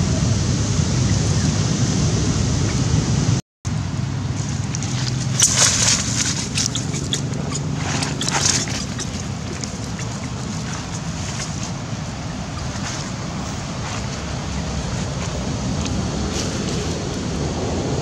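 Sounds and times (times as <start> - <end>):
steady low rumble: 0.0 - 18.0
wind buffeting microphone: 0.0 - 18.0
short crackly bursts: 4.4 - 16.8.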